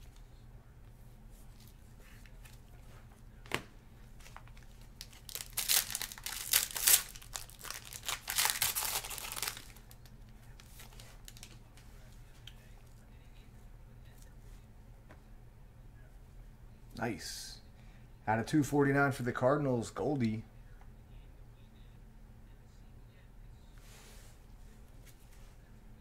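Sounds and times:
foil wrapper crinkling and tearing: 4.3s - 10.0s, 10.6s - 11.6s.

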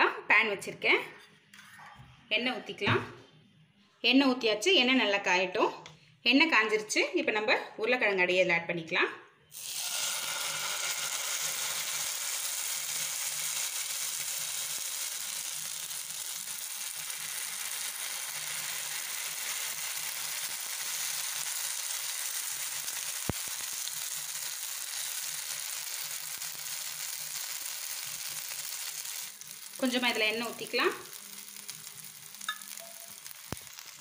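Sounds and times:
batter sizzling in hot oil: 9.5s - 34.0s.

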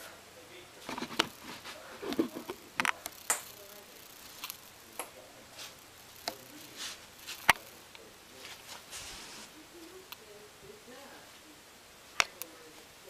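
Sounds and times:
soft rustles: 0.8s - 2.6s, 6.5s - 10.0s
back joints popping: 0.8s - 3.6s.

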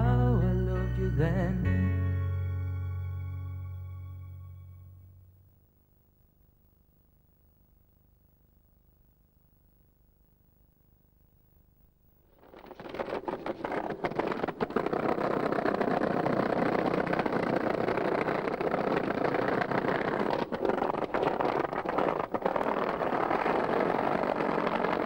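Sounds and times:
skateboard wheels rolling on tarmac: 12.3s - 25.0s
skateboard clacks: 12.7s - 25.0s.

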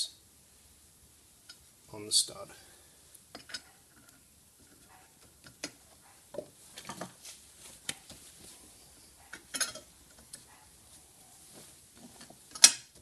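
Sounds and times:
metal parts clicking and clinking: 3.3s - 4.2s, 9.3s - 10.3s, 12.2s - 12.9s.

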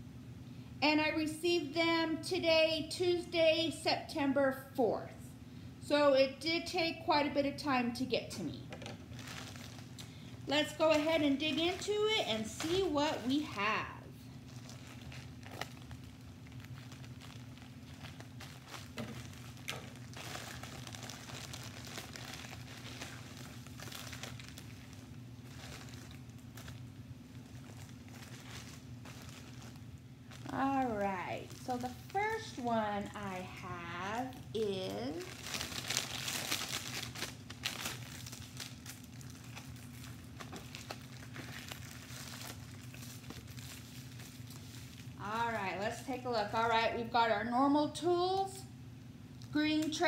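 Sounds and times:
steady low hum: 0.0s - 50.0s
plastic mailer crinkling: 8.8s - 46.2s.

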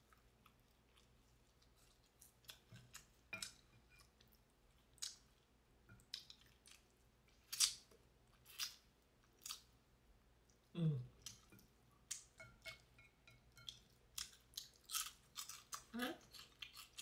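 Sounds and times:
chewing: 0.0s - 5.4s, 13.6s - 17.0s.

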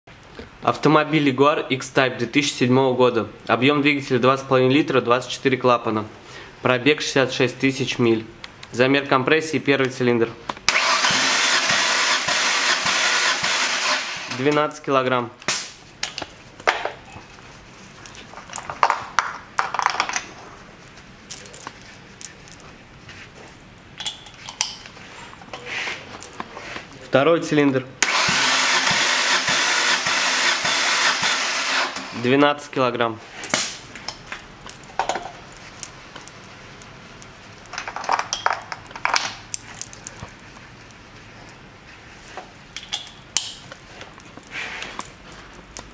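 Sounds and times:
metal tools clicking and clinking: 21.2s - 22.7s, 33.4s - 40.3s.

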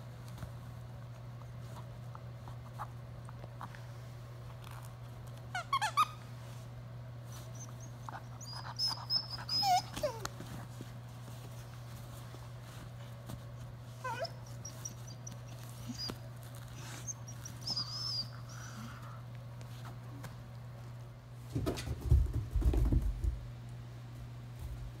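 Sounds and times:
squeaky toy squeaking: 5.5s - 6.2s, 8.4s - 10.0s
dull thumps on carpeted stairs: 21.5s - 23.5s.

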